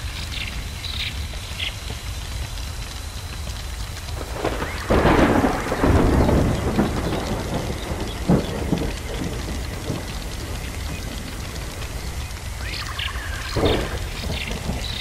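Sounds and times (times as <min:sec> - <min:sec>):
steady rain: 0:00.0 - 0:15.0
thunder rolling: 0:04.1 - 0:15.0
sharp thunder cracks: 0:04.2 - 0:15.0.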